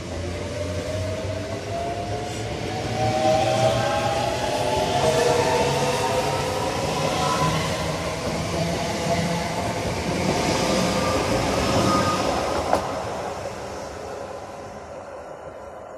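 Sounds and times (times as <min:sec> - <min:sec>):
train wheels rumbling on rail: 0:00.0 - 0:15.9.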